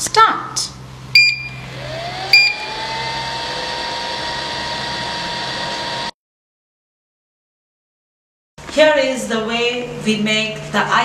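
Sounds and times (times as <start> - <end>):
control panel beep: 1.2 - 1.7, 2.3 - 2.6
motor whine and hum: 1.2 - 6.2.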